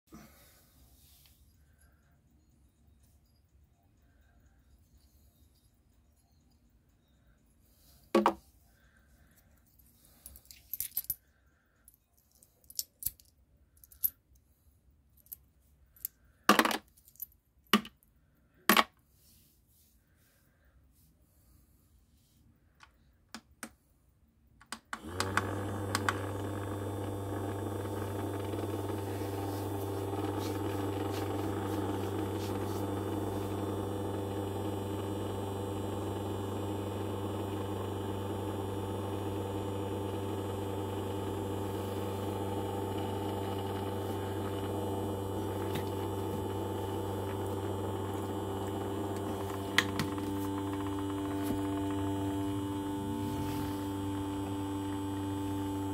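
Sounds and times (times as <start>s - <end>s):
ultrasonic cleaner humming: 25.0s - 55.9s.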